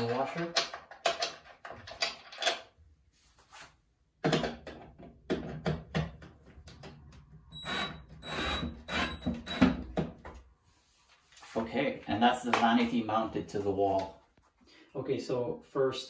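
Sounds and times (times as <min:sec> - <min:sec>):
cordless drill driving screw: 0:07.6 - 0:09.9.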